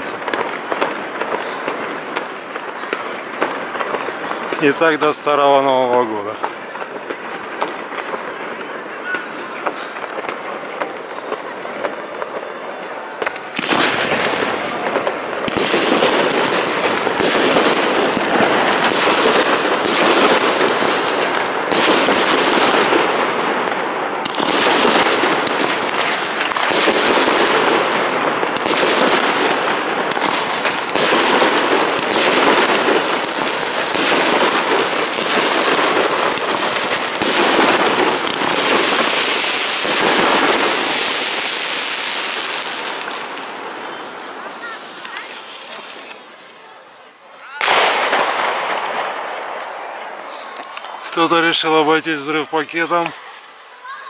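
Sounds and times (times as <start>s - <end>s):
fireworks bangs: 0.0s - 54.0s
fireworks crackle: 0.0s - 54.0s
high fizzing hiss: 43.5s - 46.6s.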